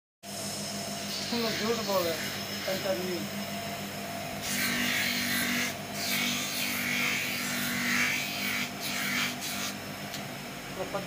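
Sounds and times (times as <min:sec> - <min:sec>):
bench grinder motor hum: 0:00.3 - 0:11.0
rubber rasping on grinding wheel: 0:04.4 - 0:09.8.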